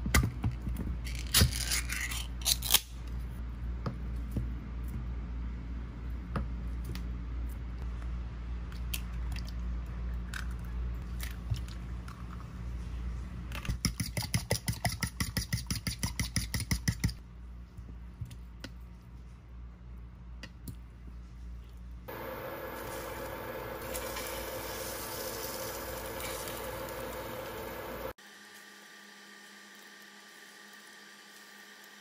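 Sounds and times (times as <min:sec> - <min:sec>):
steady low hum: 0:17.2 - 0:28.2.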